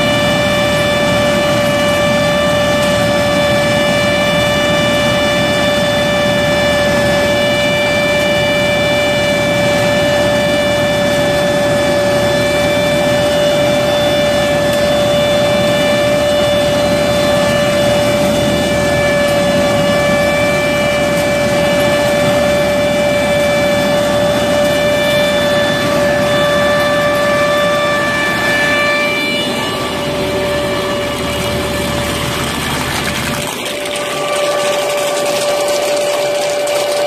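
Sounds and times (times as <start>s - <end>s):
steady machine whine: 0.0s - 37.0s
harvester machine running: 9.1s - 37.0s.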